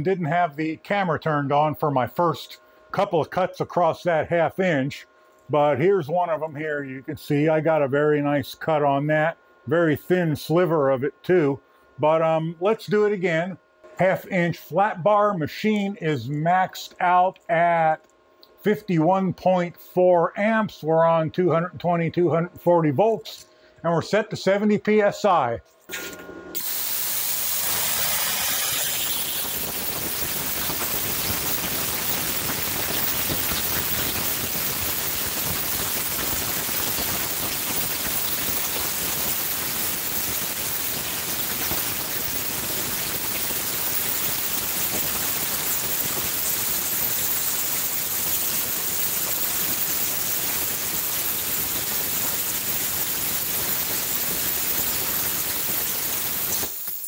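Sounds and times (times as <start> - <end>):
plasma cutter hissing: 25.9 - 57.0.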